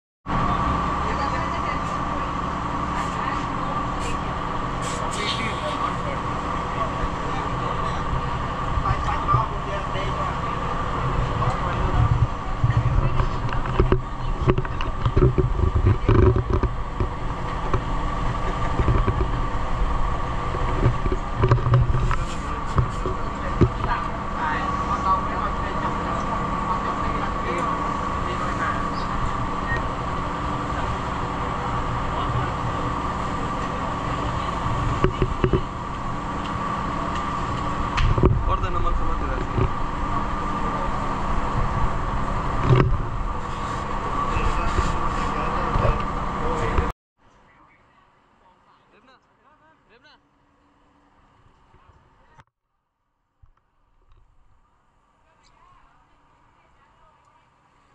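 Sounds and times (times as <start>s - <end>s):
boat engine running: 0.2s - 48.8s.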